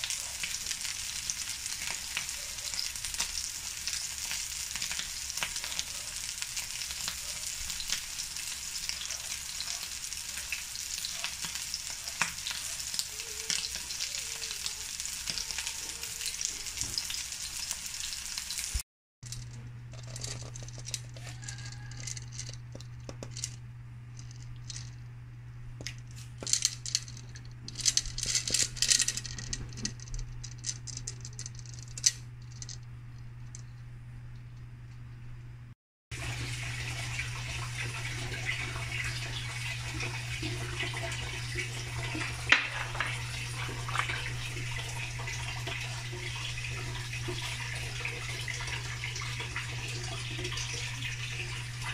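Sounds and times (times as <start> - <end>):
patties sizzling in frying pan: 0.0 - 18.8
clicks and clatters: 19.2 - 25.0, 25.8 - 33.8.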